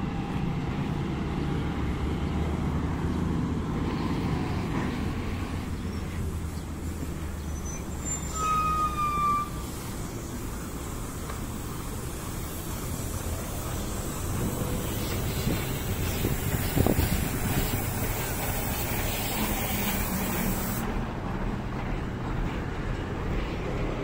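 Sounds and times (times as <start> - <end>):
city traffic noise: 0.0 - 24.0
wind on microphone: 14.4 - 18.2.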